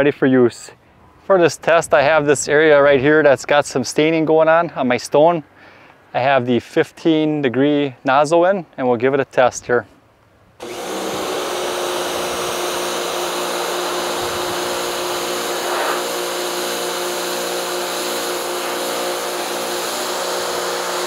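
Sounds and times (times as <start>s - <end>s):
pressure washer motor hum: 10.6s - 21.0s
high-pressure water spray hiss: 13.5s - 21.0s.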